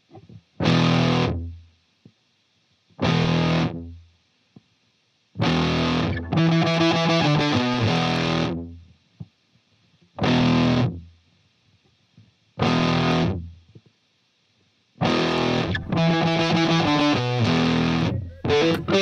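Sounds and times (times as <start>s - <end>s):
distorted electric guitar chords: 0.6s - 1.4s, 5.4s - 8.6s, 12.6s - 13.4s, 15.0s - 19.0s.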